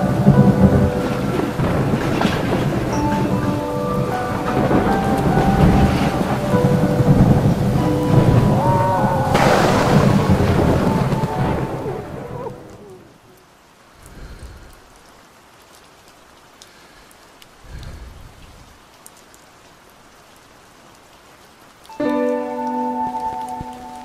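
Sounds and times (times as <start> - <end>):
thunder crash and rumbles: 0.0 - 13.1
steady rain: 0.0 - 24.0.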